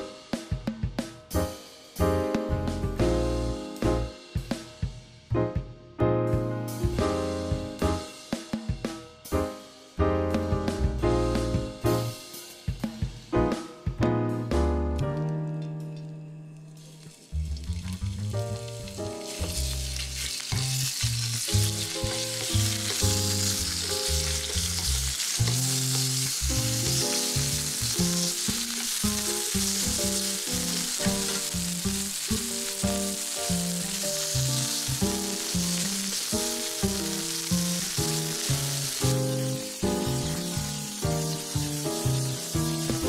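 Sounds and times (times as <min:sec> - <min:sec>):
background music with a beat: 0:00.0 - 0:16.0, 0:25.6 - 0:43.0
meat sizzling in a frying pan: 0:16.8 - 0:43.0.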